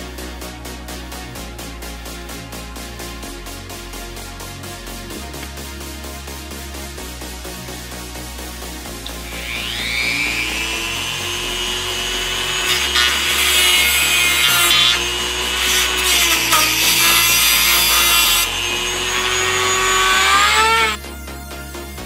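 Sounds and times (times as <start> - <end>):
cut-off wheel grinding metal: 9.1 - 21.0
rotary tool whining: 9.1 - 21.0.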